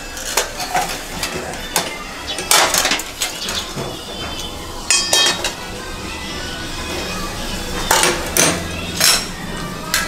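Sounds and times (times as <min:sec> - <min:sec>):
steel utensils clattering: 0:00.0 - 0:05.7, 0:07.9 - 0:10.0.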